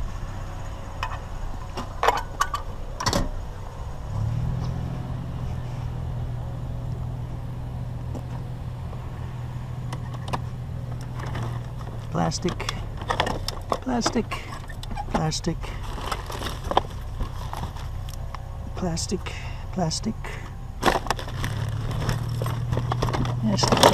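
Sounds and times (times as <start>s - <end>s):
vehicle engine hum: 0.0s - 23.9s
small items clinking: 15.7s - 18.2s, 20.8s - 23.9s.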